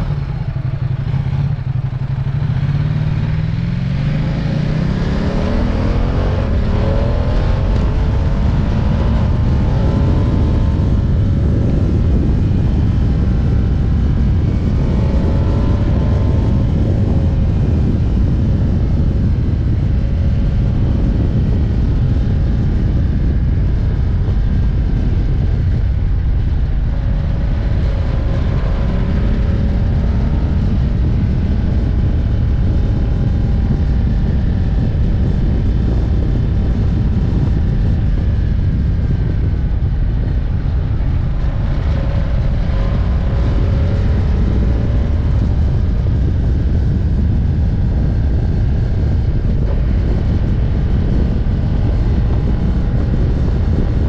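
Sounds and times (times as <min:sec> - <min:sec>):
motorcycle engine: 0:00.0 - 0:54.0
wind rushing on microphone: 0:00.0 - 0:54.0.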